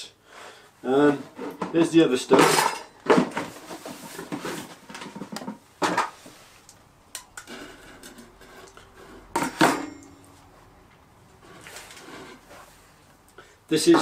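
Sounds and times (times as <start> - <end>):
short metallic ring: 9.5 - 10.3.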